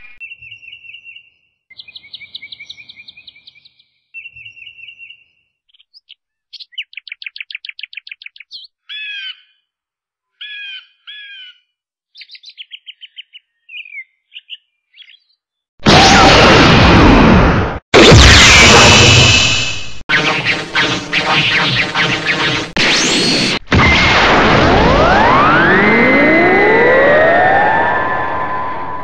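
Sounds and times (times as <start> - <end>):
bird-like chirping sound effects: 0.0 - 9.4.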